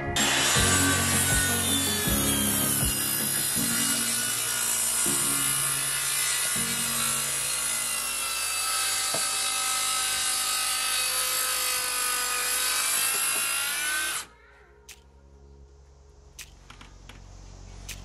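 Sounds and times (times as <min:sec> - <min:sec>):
track saw cutting wood: 0:00.0 - 0:14.3.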